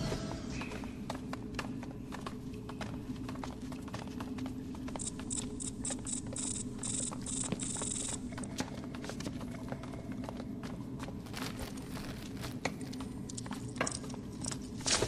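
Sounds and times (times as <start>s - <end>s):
footsteps on rock: 7.5s - 13.3s.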